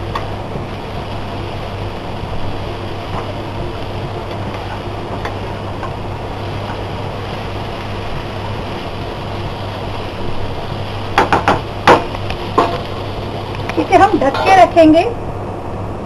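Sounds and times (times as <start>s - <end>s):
vegetables sizzling in oil: 0.0s - 15.4s
low steady hum: 0.0s - 16.0s
sharp knocks: 11.2s - 12.8s
spatula stirring in pan: 13.9s - 14.8s.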